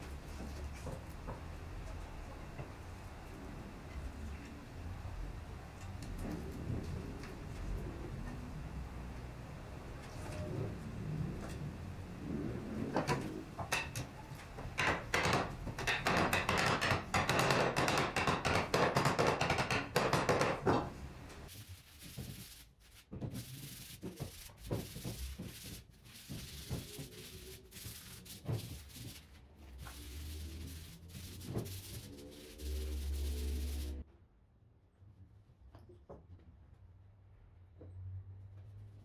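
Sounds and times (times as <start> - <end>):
hand sanding wood: 21.5 - 34.0.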